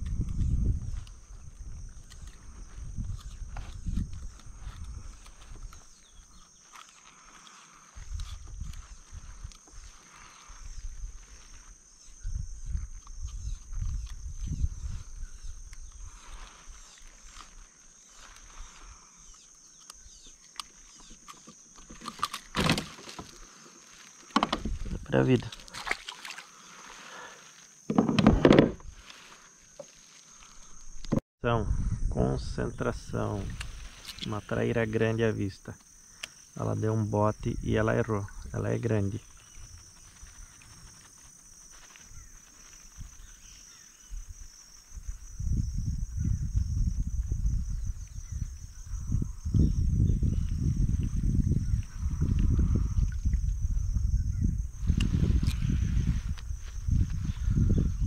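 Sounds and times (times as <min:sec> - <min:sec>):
insects calling: 0:00.0 - 0:58.0
rough handling noise: 0:19.8 - 0:31.2.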